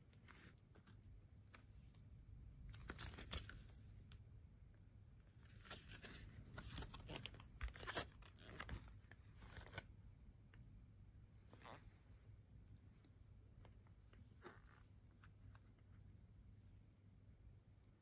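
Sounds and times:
cardboard record sleeve being handled: 2.6 - 4.2, 5.4 - 10.0.

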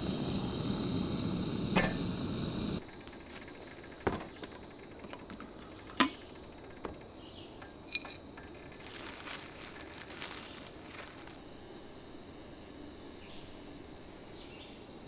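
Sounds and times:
plastic packet crinkling: 8.4 - 11.4.

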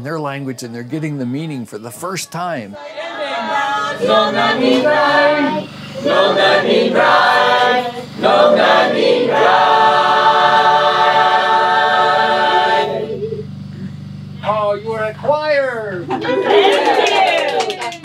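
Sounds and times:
choir singing unaccompanied: 2.8 - 13.4.

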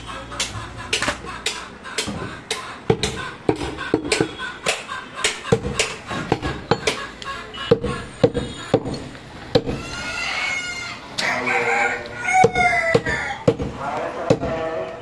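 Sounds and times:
knife chopping meat on wood block: 0.4 - 7.0, 12.4 - 14.6.

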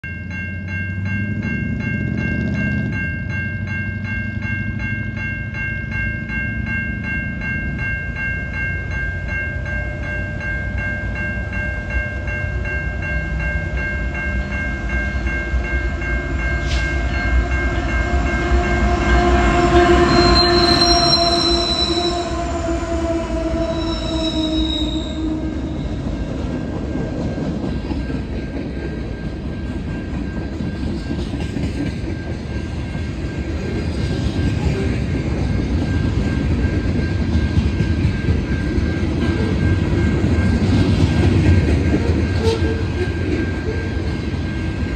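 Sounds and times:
railroad crossing bell ringing: 0.0 - 44.9
freight cars rumbling over rails: 0.3 - 44.9
locomotive horn: 16.6 - 25.9, 42.4 - 43.1.

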